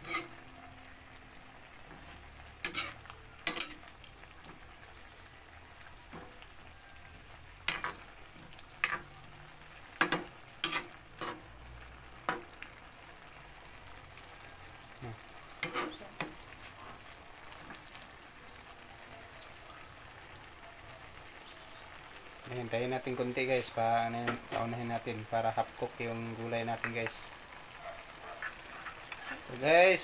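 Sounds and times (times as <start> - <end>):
pan sizzling: 0.0 - 30.0.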